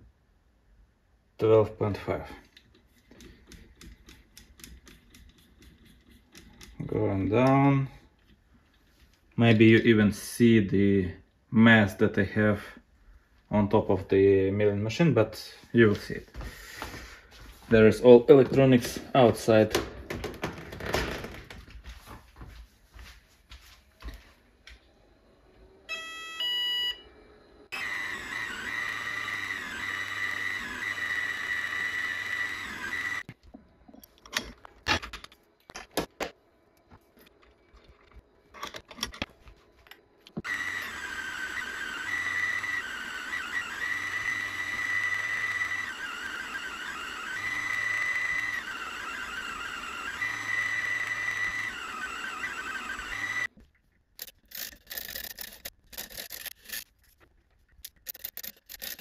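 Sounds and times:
mill spindle whining while drilling: 0:27.2 - 0:33.3, 0:40.3 - 0:53.5.

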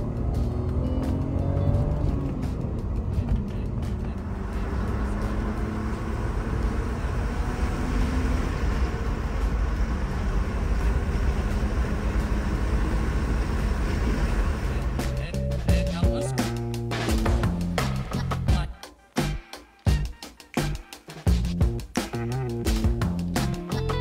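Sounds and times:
road and wind noise: 0:00.0 - 0:18.1
car engine running: 0:00.0 - 0:18.5.

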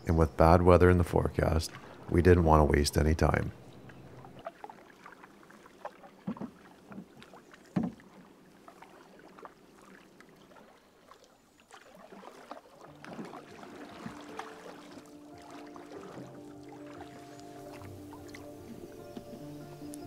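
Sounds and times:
paddle pulling through water: 0:01.0 - 0:20.0
paddle knocking against canoe: 0:03.9 - 0:10.6, 0:11.7 - 0:20.0.

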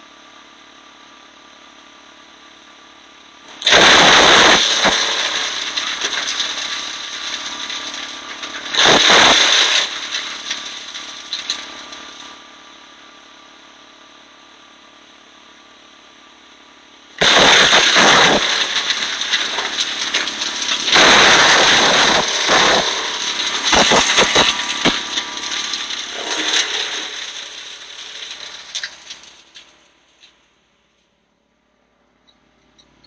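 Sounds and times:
wood chipper engine running: 0:00.0 - 0:30.4
wood crackling and grinding: 0:03.5 - 0:12.4, 0:17.2 - 0:30.4.

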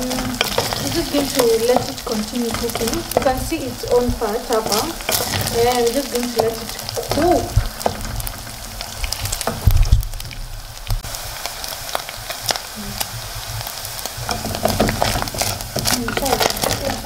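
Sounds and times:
wooden spatula stirring: 0:00.0 - 0:11.1, 0:11.7 - 0:17.0
meat sizzling in a pot: 0:00.0 - 0:17.0.

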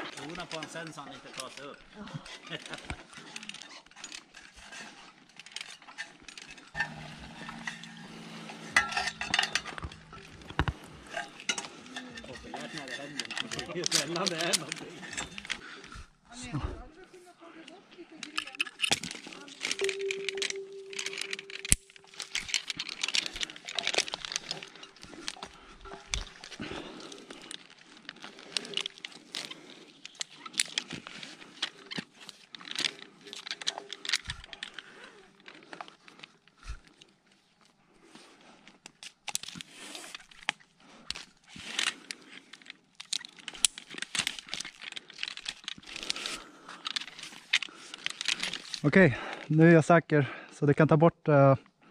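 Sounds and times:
crinkling and rustling: 0:00.0 - 0:48.9
climbing hardware clinking: 0:02.5 - 0:15.6, 0:18.2 - 0:34.9
steady hum: 0:06.8 - 0:11.5.

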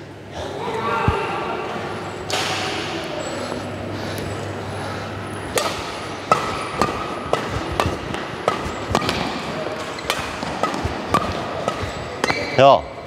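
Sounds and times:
racket hitting shuttlecock: 0:02.3 - 0:03.0, 0:05.5 - 0:12.6.

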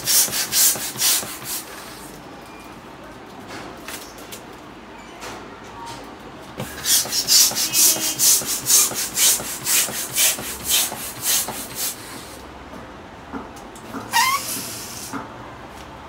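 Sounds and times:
hand pump rasping whoosh: 0:00.0 - 0:02.1, 0:06.6 - 0:12.4, 0:14.1 - 0:15.2.

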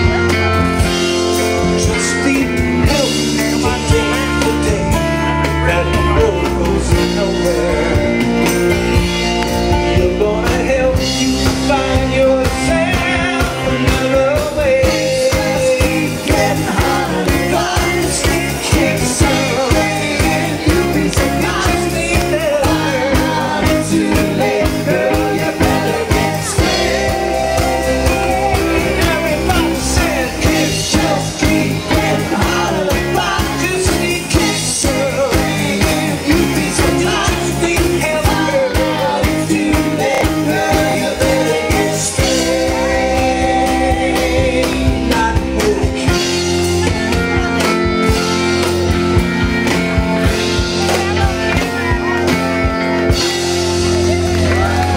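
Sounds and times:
person singing: 0:00.0 - 0:54.9
rock band playing live: 0:00.0 - 0:54.9
drum beat: 0:08.3 - 0:54.9.

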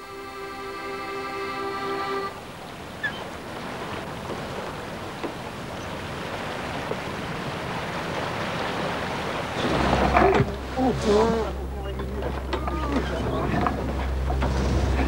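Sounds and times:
sea waves: 0:00.0 - 0:15.0
wind: 0:00.0 - 0:15.0.

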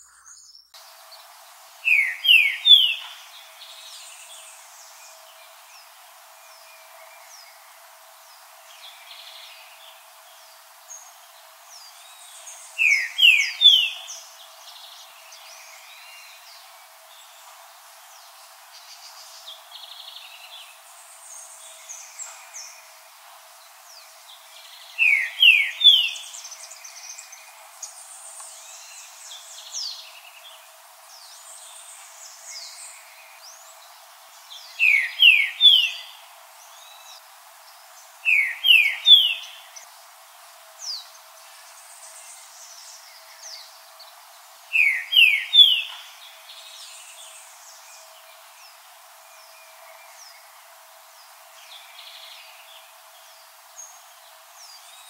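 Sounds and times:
faint high bird chirps: 0:01.8 - 0:05.6.

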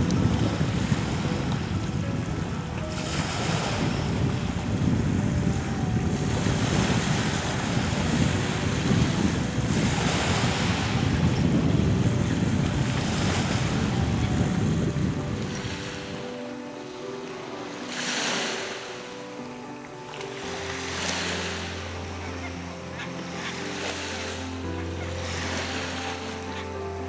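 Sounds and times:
wind buffeting microphone: 0:00.0 - 0:19.0
waves washing onto pebble shore: 0:02.0 - 0:05.1, 0:05.9 - 0:26.8.

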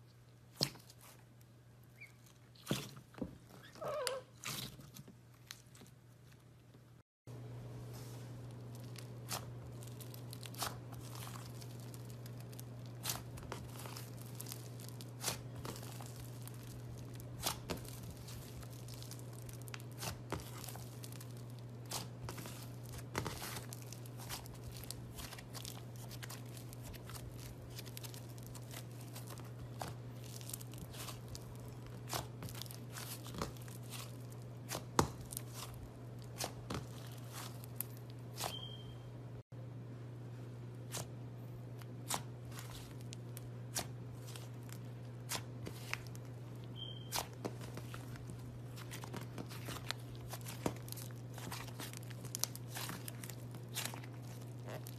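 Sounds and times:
slime popping and crackling: 0:08.8 - 0:38.7, 0:45.3 - 0:54.9.

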